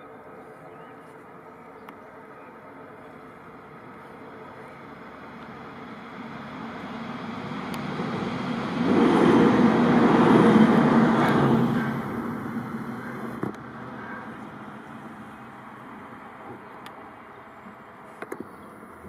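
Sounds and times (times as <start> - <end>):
car passing by: 4.9 - 16.2.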